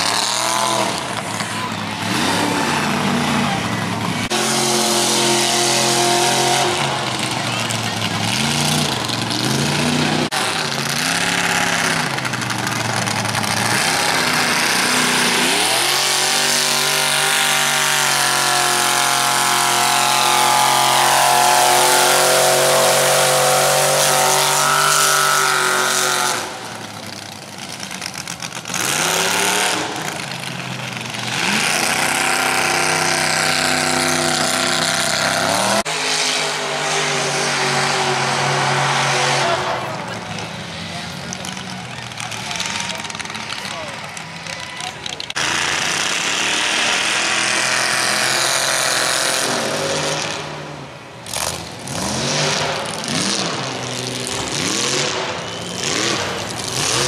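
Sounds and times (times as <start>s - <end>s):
engine revving: 0.0s - 57.0s.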